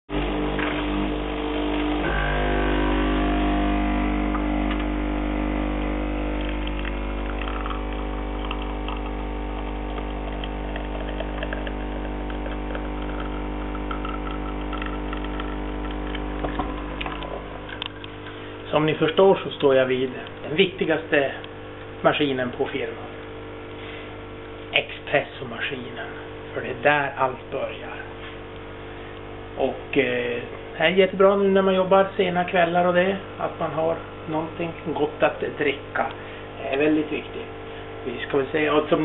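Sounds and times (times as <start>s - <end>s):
coffee streaming into cup: 0.1s - 18.7s
espresso machine pump humming: 0.1s - 39.0s
faint crackling and sputtering: 5.6s - 18.5s.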